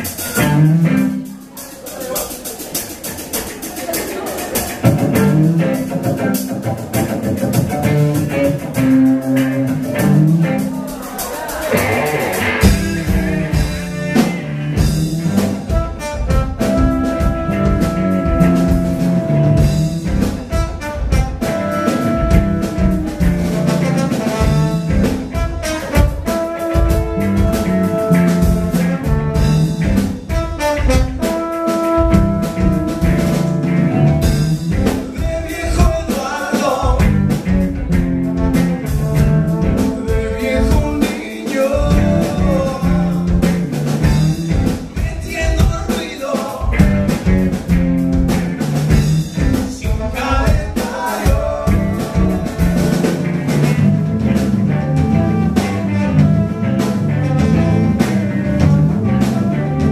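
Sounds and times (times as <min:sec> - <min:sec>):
rock band playing live: 0:00.0 - 0:59.9
trombone: 0:11.8 - 0:45.7, 0:46.8 - 0:59.9.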